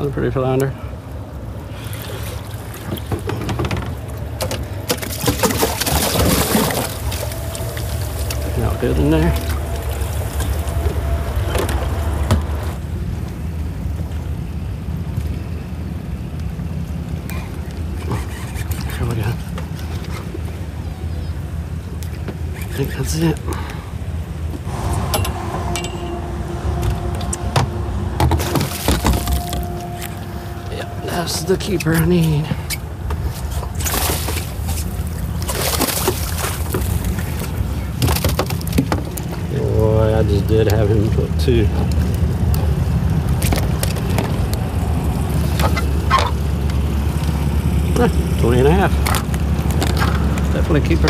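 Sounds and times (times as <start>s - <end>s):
wind rumbling on microphone: 0.9s - 22.8s
water sloshing: 1.4s - 12.8s, 16.9s - 39.5s
fish splashing in water: 4.0s - 12.3s, 28.4s - 30.4s, 33.3s - 39.4s.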